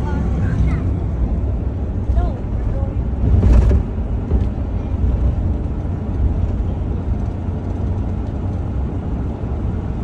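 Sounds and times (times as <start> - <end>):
road and engine rumble: 0.0 - 10.0.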